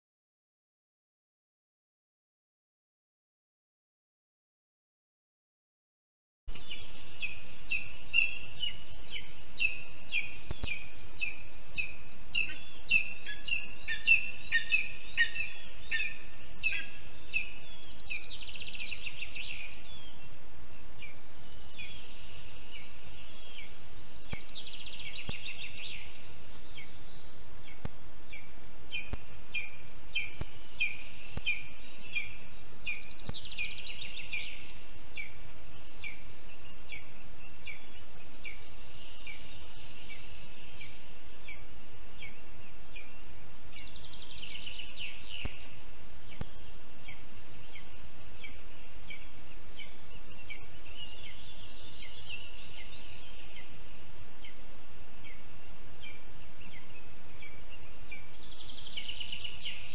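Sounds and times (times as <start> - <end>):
background hiss: 6.5 - 59.9.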